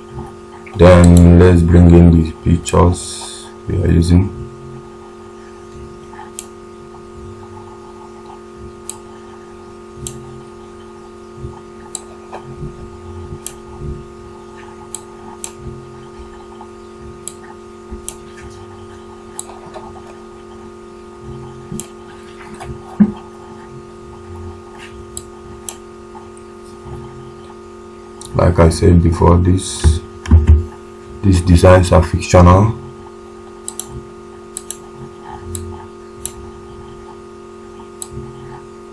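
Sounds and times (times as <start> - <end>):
steady electrical hum: 0.0 - 38.9
loud knock: 29.9 - 30.7
computer mouse clicking: 33.6 - 33.9, 34.5 - 36.4.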